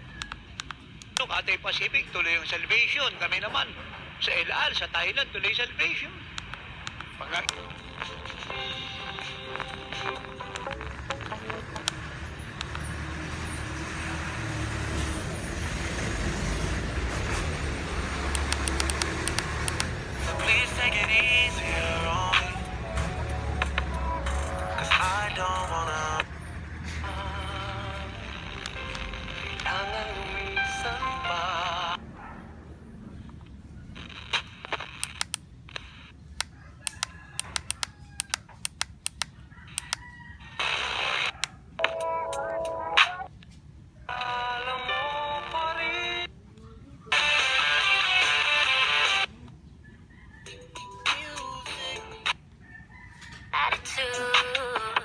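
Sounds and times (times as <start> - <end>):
radio static hiss: 1.2 - 11.7, 33.9 - 36.2, 40.6 - 41.4
radio tuning clicks: 6.3 - 8.5, 9.1 - 12.0, 18.3 - 20.0, 33.9 - 40.0.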